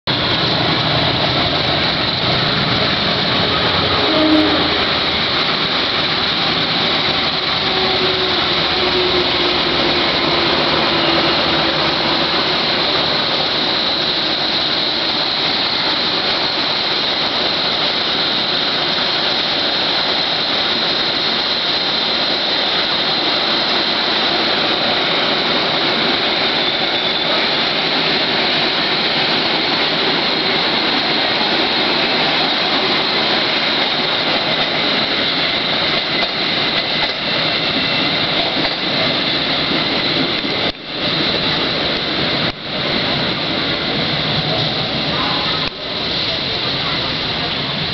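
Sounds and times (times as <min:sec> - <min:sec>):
train wheels rushing on rail: 0:00.0 - 0:47.9.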